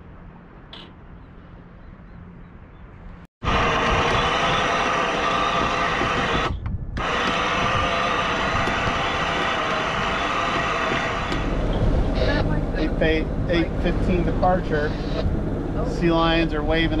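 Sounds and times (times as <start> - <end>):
anchor windlass whining: 3.4 - 17.0.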